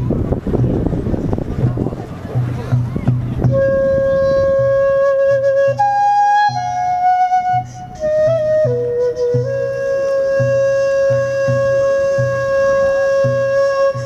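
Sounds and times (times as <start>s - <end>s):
low taiko drum beats: 0.0s - 14.0s
flute playing slow melody: 3.4s - 14.0s.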